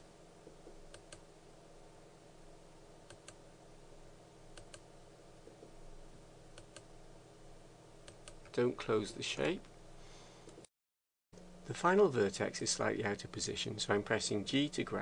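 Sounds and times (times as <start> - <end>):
low steady hum: 0.0 - 10.7, 11.4 - 15.0.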